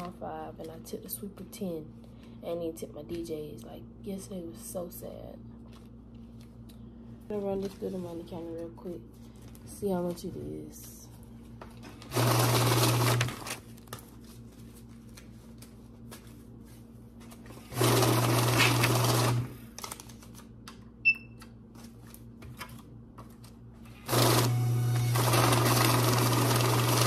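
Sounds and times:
banknotes rustling and clicking: 0:13.0 - 0:17.6, 0:19.6 - 0:20.8
bill-counting machine whirring: 0:24.1 - 0:27.0.

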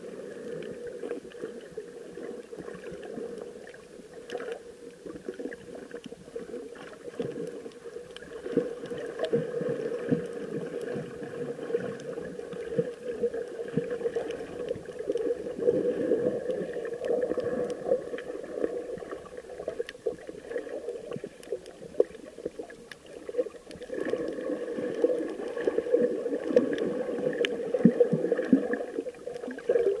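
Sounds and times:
underwater water movement: 0:00.0 - 0:30.0
sharp underwater clicks: 0:06.9 - 0:15.5, 0:21.1 - 0:28.6.

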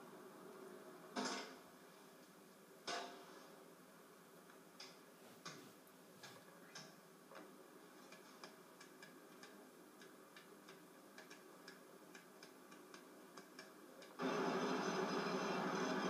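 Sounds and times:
faint irregular ticks: 0:06.2 - 0:14.2.

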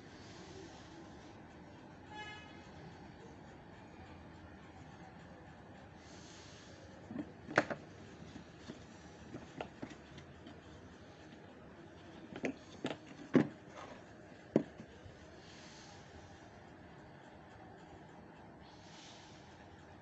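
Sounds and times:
plastic toy clicks and knocks: 0:07.2 - 0:07.9.

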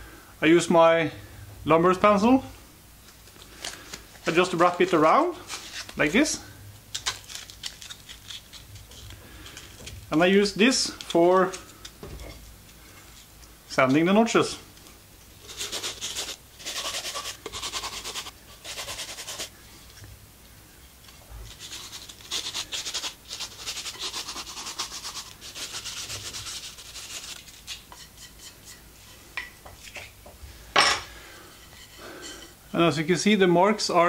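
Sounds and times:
sandpaper rubbing wood: 0:15.4 - 0:19.5, 0:21.5 - 0:28.7.

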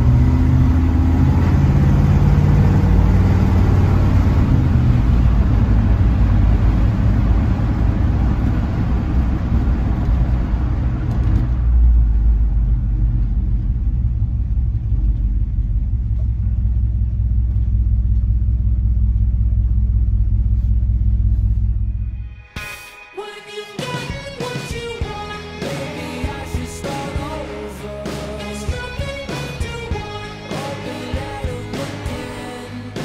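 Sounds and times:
road and wind noise: 0:00.0 - 0:20.1
truck engine rumbling: 0:00.0 - 0:22.3, 0:24.2 - 0:33.0.

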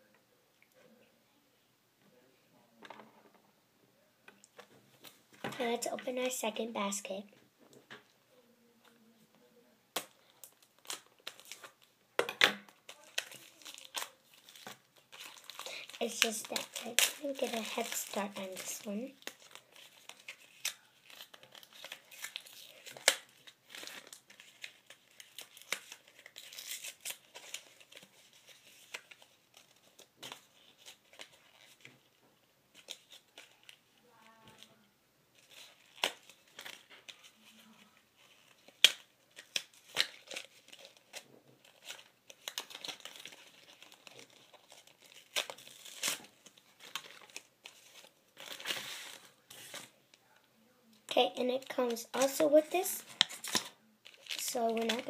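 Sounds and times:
plastic packaging crinkling and tearing: 0:09.9 - 0:34.8, 0:35.4 - 0:50.4, 0:51.1 - 0:55.0.

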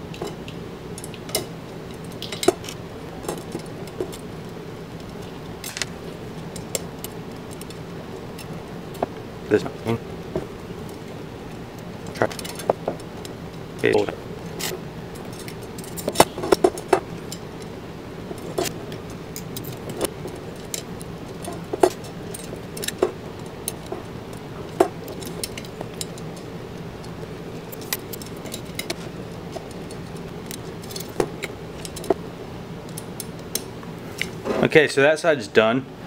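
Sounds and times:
metal spokes clicking: 0:10.3 - 0:32.2.

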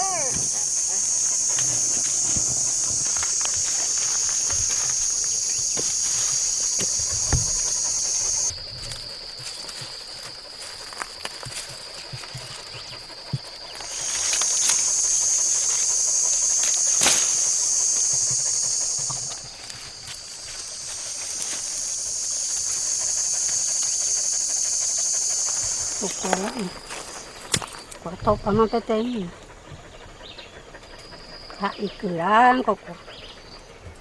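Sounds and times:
knocks and rustles in dry leaves: 0:00.0 - 0:23.6
cicadas droning: 0:00.0 - 0:34.0.

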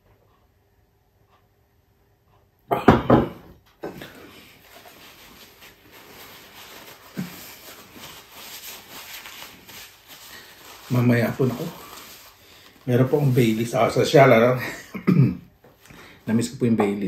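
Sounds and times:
paper napkin rustling: 0:04.0 - 0:14.6.

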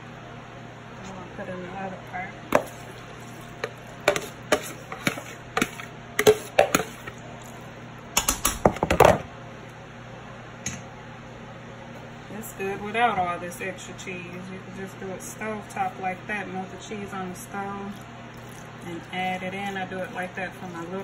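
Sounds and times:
utensil scraping on plate: 0:02.6 - 0:07.2, 0:18.4 - 0:21.0.

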